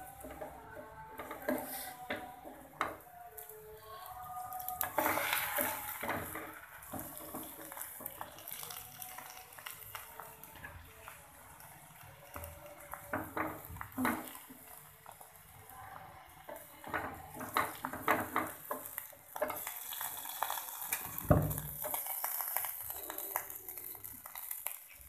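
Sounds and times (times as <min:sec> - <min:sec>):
spatula scraping frying pan: 0:04.8 - 0:09.8.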